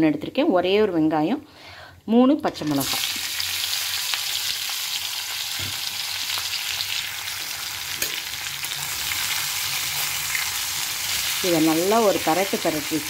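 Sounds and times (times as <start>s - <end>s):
hot oil sizzling: 2.6s - 13.0s.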